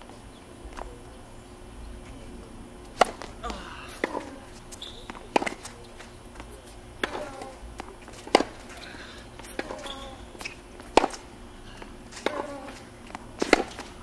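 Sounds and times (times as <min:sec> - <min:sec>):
tennis ball bouncing on court: 0:02.9 - 0:08.8, 0:09.4 - 0:11.4, 0:12.1 - 0:14.0
tennis ball struck by rackets: 0:02.9 - 0:14.0.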